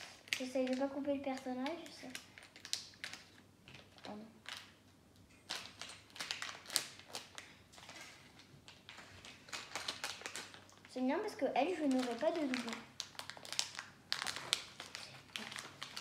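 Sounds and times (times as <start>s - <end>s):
foil bag crinkling: 0.0s - 4.8s, 5.4s - 16.0s.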